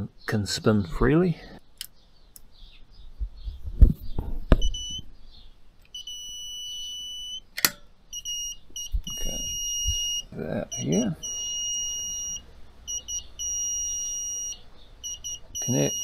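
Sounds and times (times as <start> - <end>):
electronic beeper beeping: 4.6 - 5.0, 5.9 - 7.5, 8.1 - 16.0.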